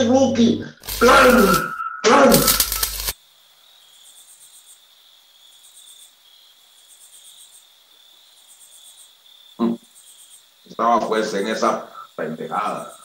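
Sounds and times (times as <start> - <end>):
crickets chirping: 0.4 - 13.0
steady high-pitched tone: 0.9 - 3.2.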